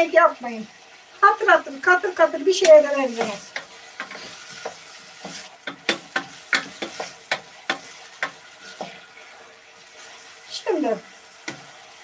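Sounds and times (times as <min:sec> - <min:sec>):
vegetables sizzling in oil: 0:00.0 - 0:12.0
wooden spoon scraping in pot: 0:03.0 - 0:10.4.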